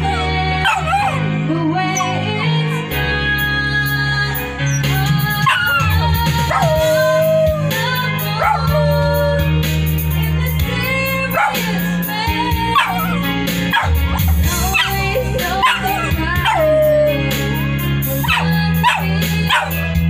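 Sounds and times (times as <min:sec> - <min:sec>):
dog howling: 0:00.0 - 0:01.3, 0:01.9 - 0:02.9, 0:04.6 - 0:09.6, 0:11.2 - 0:19.9
song with steady bass line: 0:00.0 - 0:20.0.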